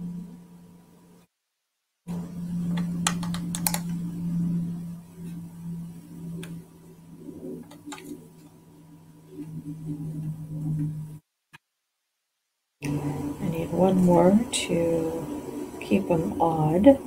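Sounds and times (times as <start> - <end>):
low hum: 0.0 - 1.3, 2.1 - 11.2, 12.8 - 17.0
paper pieces clicking and tapping: 2.8 - 3.8.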